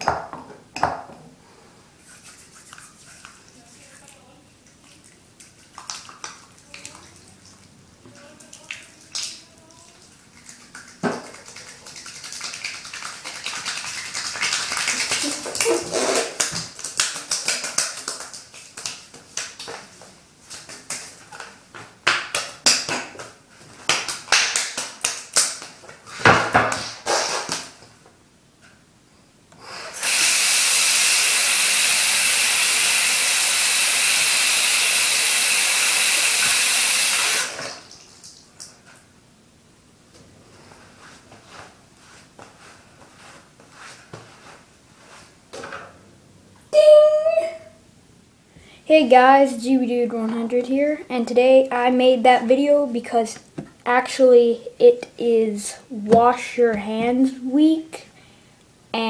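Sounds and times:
wet soapy hands rubbing: 0:02.0 - 0:07.6, 0:08.4 - 0:21.4, 0:40.5 - 0:45.4
tap running: 0:30.0 - 0:37.8.

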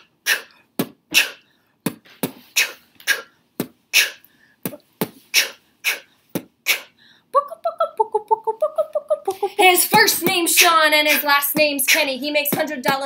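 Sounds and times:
woman beatboxing: 0:00.0 - 0:13.0.

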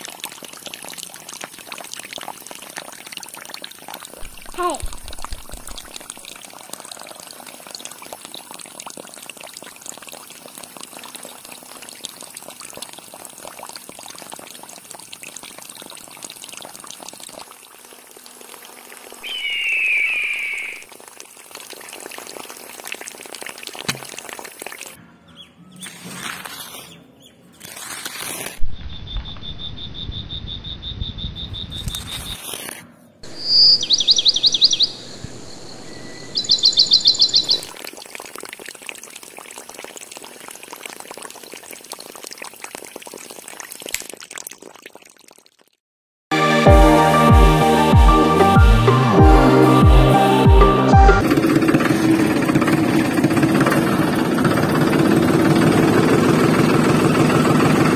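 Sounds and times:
water trickling: 0:00.0 - 0:25.0, 0:36.4 - 0:45.8
high bird chirps: 0:19.2 - 0:20.8, 0:28.7 - 0:32.4, 0:33.2 - 0:37.8
bird call: 0:19.2 - 0:20.9.

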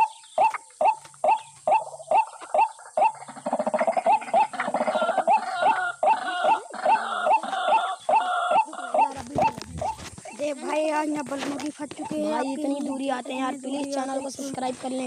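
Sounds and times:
waterhen calling: 0:00.0 - 0:10.5.

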